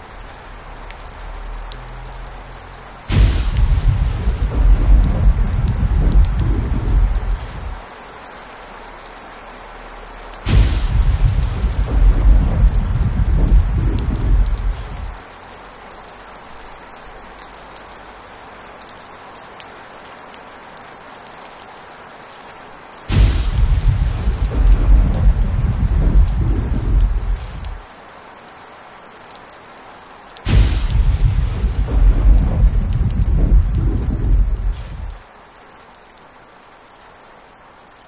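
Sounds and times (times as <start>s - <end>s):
heavy rain falling: 0.0s - 38.0s
thunder rumbling: 1.0s - 7.8s, 10.4s - 15.2s, 23.1s - 27.8s, 30.5s - 35.2s
thunder clap: 3.1s - 7.8s, 10.4s - 15.2s, 23.1s - 27.8s, 30.5s - 35.2s.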